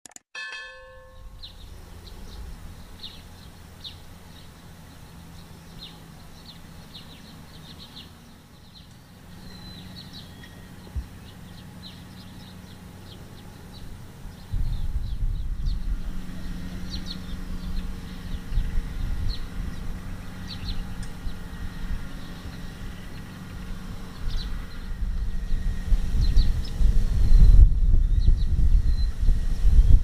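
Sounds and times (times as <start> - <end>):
bell-like ding: 0.4 - 1.5
birds chirping: 0.8 - 30.0
distant combine harvester engine hum: 0.9 - 30.0.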